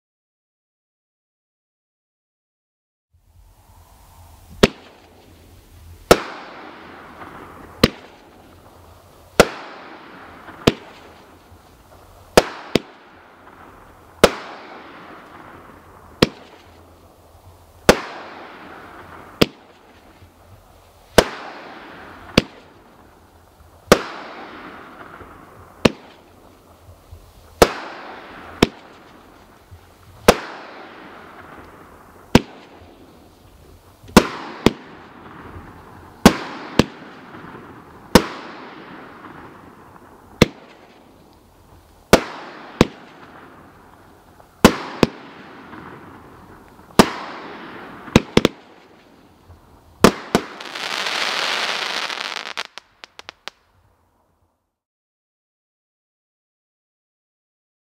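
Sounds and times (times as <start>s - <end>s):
firework cake bangs: 6.0s - 8.3s, 9.4s - 11.3s, 23.8s - 26.2s, 27.6s - 29.3s, 42.1s - 43.4s, 46.9s - 48.8s
firework stars hissing: 40.7s - 53.5s.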